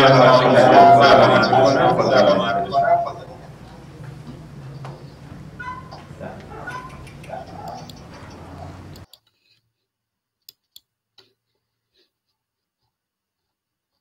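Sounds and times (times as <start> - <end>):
computer clicks: 6.7 - 9.3.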